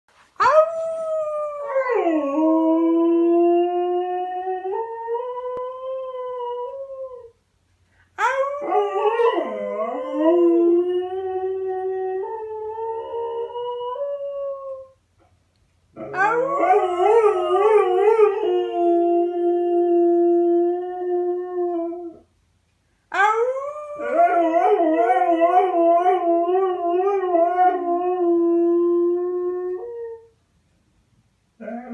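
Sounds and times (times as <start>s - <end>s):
dog howling: 16.0s - 19.6s, 23.1s - 30.0s.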